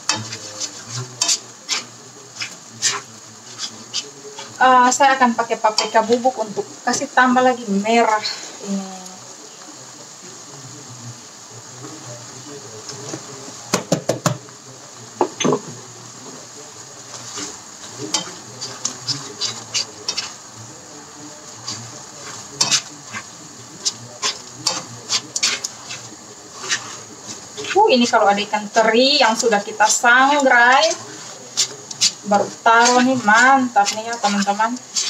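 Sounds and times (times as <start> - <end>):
spatula scraping a pan: 0.0 - 7.1, 15.3 - 35.0
paste sizzling in a wok: 0.0 - 35.0.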